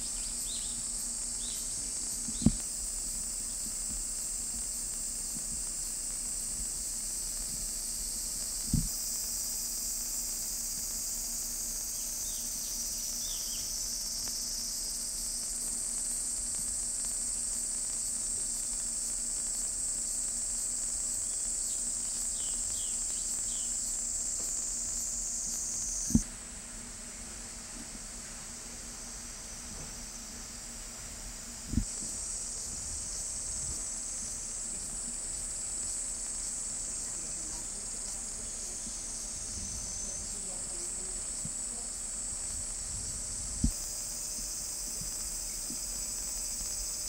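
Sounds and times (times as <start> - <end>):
high-pitched insect chorus: 0.0 - 47.0
dull low thump: 2.2 - 2.7, 8.6 - 9.0
faint bird chirps: 12.0 - 13.7.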